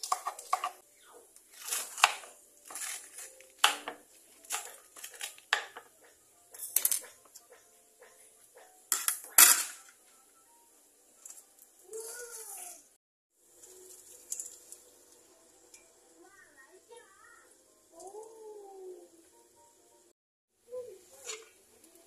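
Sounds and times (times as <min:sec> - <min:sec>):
metal pans and utensils clattering: 0:00.0 - 0:00.8, 0:01.5 - 0:10.0, 0:13.6 - 0:14.9.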